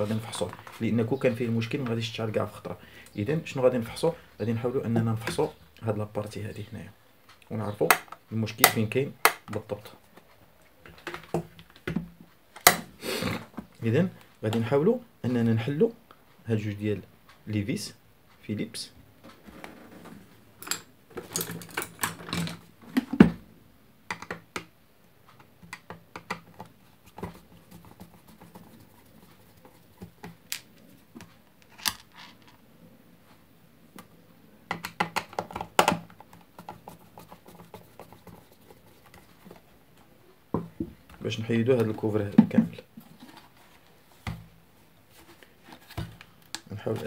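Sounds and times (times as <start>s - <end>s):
plastic housing clicks and taps: 24.1s - 24.7s, 34.7s - 36.8s.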